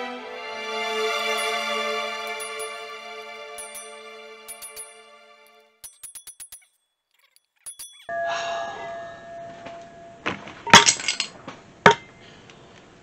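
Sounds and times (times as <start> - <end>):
bell-like music sting: 0.7 - 5.5, 8.1 - 10.3
hammer and chisel clanking on metal: 1.3 - 5.0, 5.8 - 8.1.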